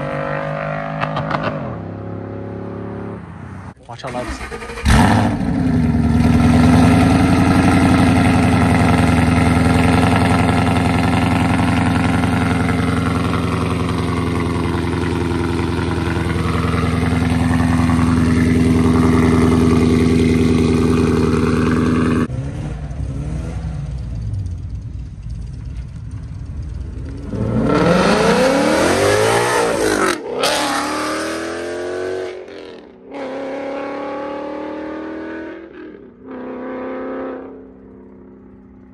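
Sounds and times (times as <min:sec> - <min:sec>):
car engine revving: 0:00.0 - 0:38.4
car engine running steadily: 0:04.8 - 0:28.3.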